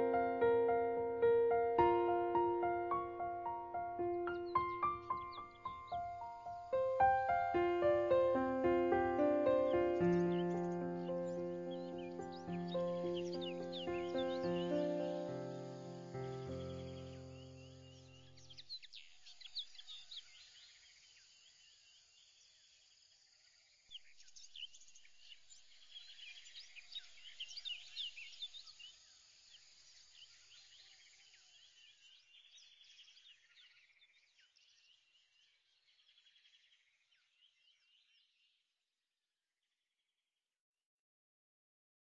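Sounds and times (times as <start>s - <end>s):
faint bird chirping: 0.0s - 38.7s.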